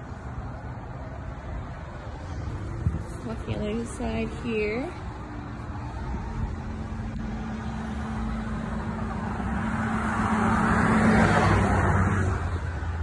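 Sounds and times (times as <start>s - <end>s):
vehicle passing by: 0.0s - 13.0s.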